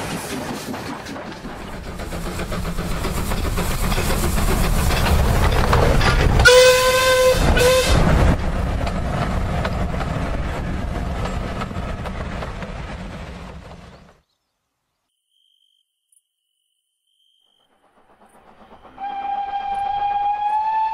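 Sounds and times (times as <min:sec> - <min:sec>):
train wagons rumbling and clacking: 0:00.0 - 0:14.2
train whistle: 0:06.4 - 0:08.1, 0:18.6 - 0:20.9.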